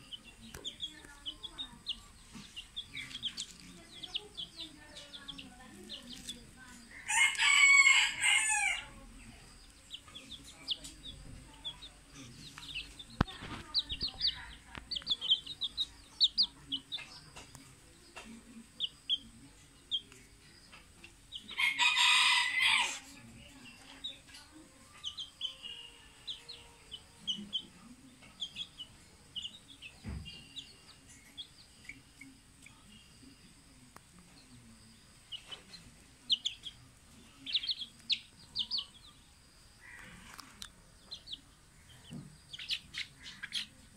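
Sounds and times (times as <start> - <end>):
rooster crowing: 7.0 - 9.0, 21.6 - 23.0.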